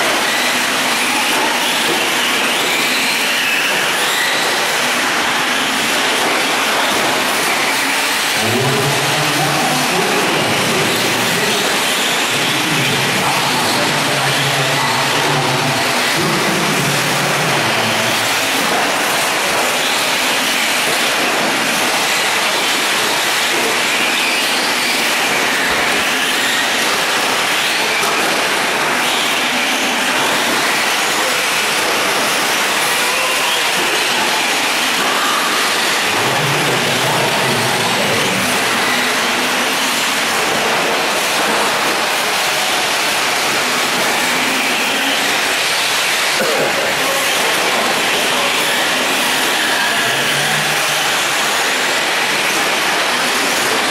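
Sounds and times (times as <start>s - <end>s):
rc trucks motor whine: 0.0s - 53.9s.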